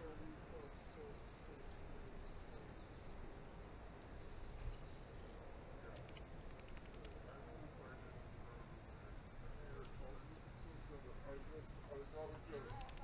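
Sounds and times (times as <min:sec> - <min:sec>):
light ticks: 0:12.3 - 0:13.0.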